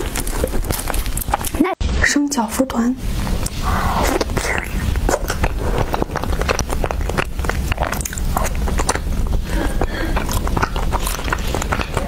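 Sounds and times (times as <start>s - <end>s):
chewing with mouth clicks: 0.0s - 1.6s, 3.4s - 12.0s
steady low hum: 0.0s - 12.0s.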